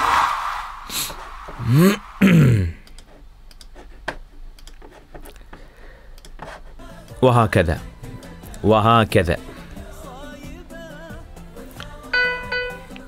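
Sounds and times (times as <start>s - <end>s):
man's voice sliding in pitch: 1.6s - 2.8s
song music: 7.6s - 13.0s.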